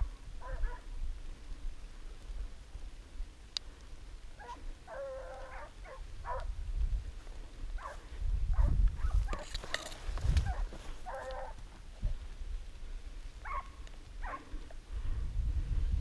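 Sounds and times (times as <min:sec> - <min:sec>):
wind rumbling on microphone: 0:00.0 - 0:16.0
dogs barking: 0:00.4 - 0:00.9, 0:04.4 - 0:06.5, 0:07.8 - 0:08.0, 0:10.5 - 0:11.6, 0:13.4 - 0:14.5.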